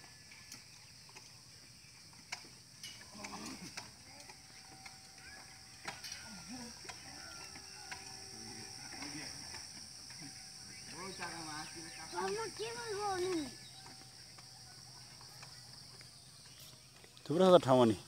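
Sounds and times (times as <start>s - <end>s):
distant children's voices: 3.0s - 16.9s.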